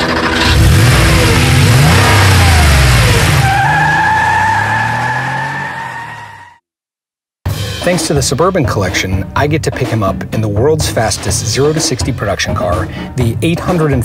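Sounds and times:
car engine revving: 0.0 - 6.3
tyre squealing: 0.6 - 6.6.

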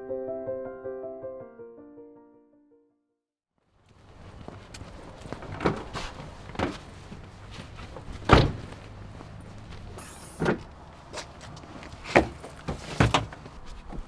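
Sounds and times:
footsteps on pavement: 3.8 - 14.0.

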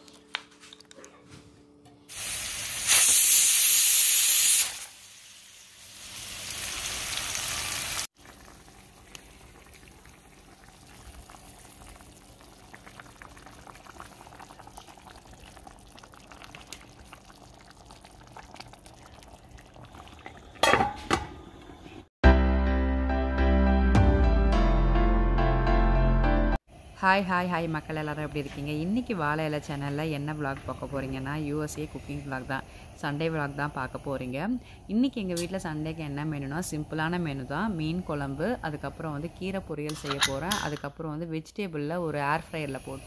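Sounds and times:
hiss: 2.1 - 5.3
loud sizzle: 2.1 - 15.6
curry simmering with bubbles: 5.6 - 21.9.

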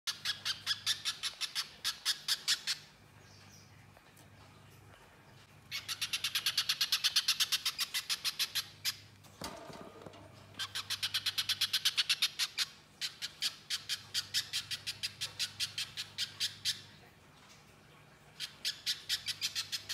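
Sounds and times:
faint low hum: 0.1 - 6.7.

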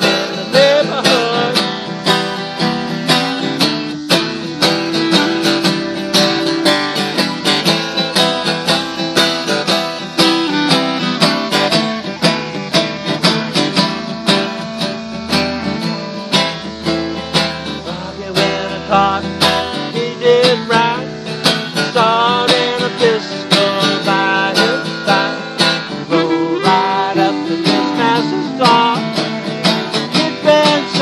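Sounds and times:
acoustic guitar strummed: 0.0 - 31.0
clarinet playing held notes: 0.0 - 31.0.

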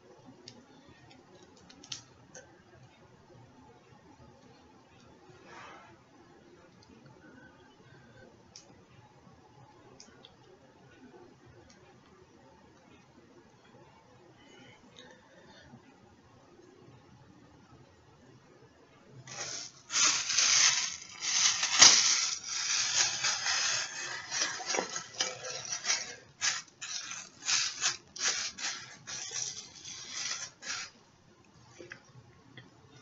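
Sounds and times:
plastic shower cap crinkling: 19.3 - 31.0.

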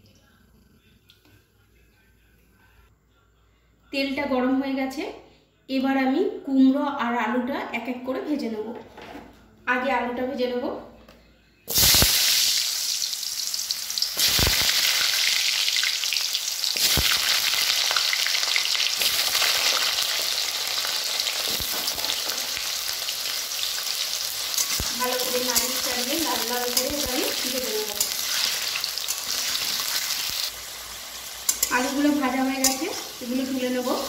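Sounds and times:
potatoes sizzling in oil: 11.7 - 34.0.

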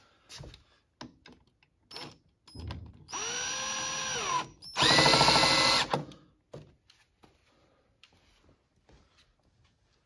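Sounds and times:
cordless drill whining: 3.1 - 6.1.

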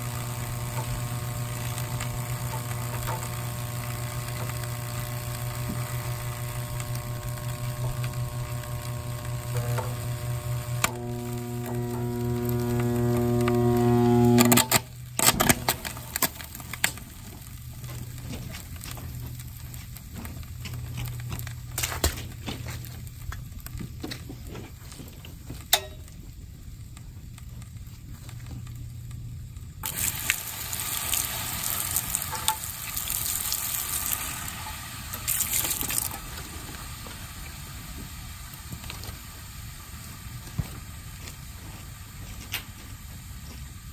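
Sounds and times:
fan motor electrical hum: 0.0 - 43.9
motor crackling and popping: 0.0 - 43.9
hissing: 4.4 - 14.6.

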